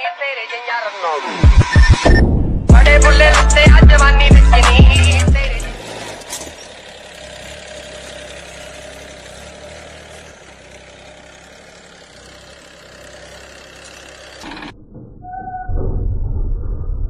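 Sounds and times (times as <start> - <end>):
tractor diesel engine running: 2.7 - 14.8.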